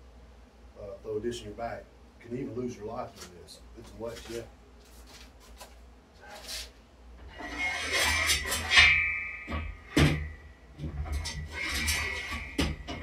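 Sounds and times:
ringing metal tone: 0:07.3 - 0:13.0
sharp metal clanks: 0:07.3 - 0:13.0.

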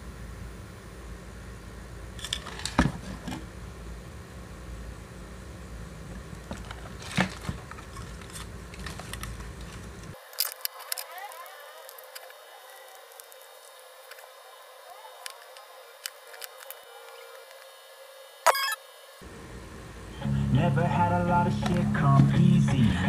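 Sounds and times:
handling noise: 0:06.1 - 0:14.4.

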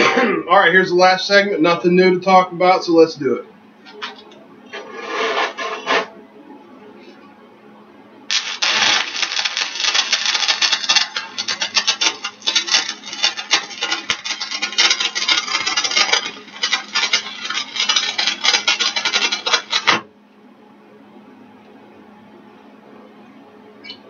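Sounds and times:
welding arc crackling: 0:08.3 - 0:20.1.

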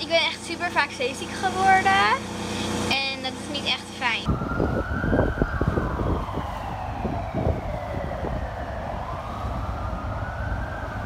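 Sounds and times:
siren wailing: 0:04.2 - 0:11.0
low rumble: 0:04.3 - 0:11.0.

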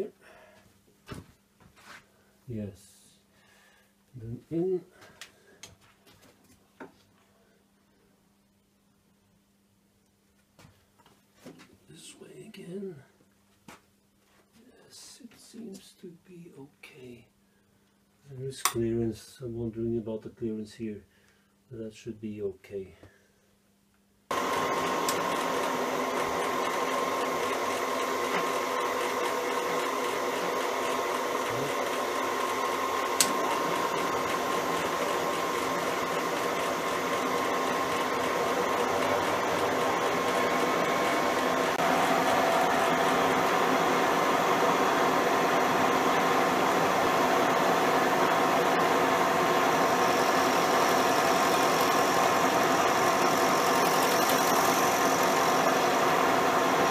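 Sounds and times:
milling machine whine and hum: 0:24.3 - 0:56.9
sharp click: 0:33.2 - 0:33.4.

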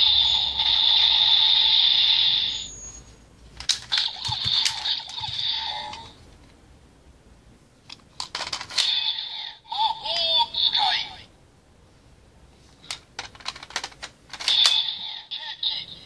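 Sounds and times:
brief electronic tone: 0:02.5 - 0:03.2
toy electronic sound loop: 0:03.9 - 0:06.1, 0:14.4 - 0:15.8
plastic clicks: 0:07.8 - 0:08.9, 0:12.8 - 0:14.9.

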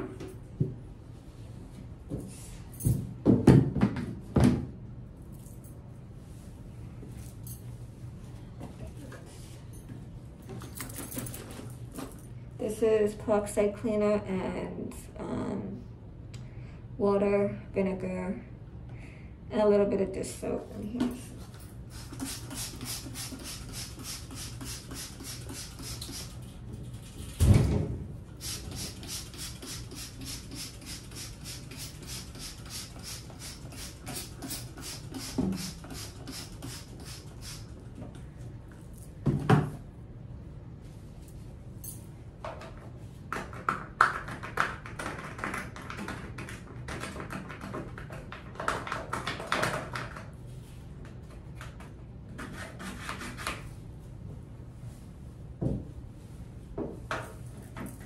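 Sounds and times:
trigger spray bottle spraying: 0:21.9 - 0:26.4, 0:28.4 - 0:37.7.

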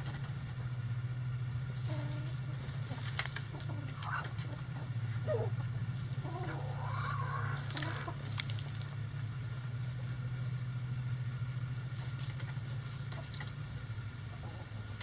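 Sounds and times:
steady low hum: 0:00.0 - 0:15.0
rooster crowing: 0:06.2 - 0:08.2.

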